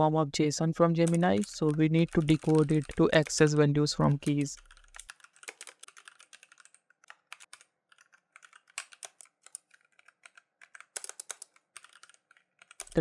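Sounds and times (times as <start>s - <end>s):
computer keyboard typing: 0.8s - 13.0s.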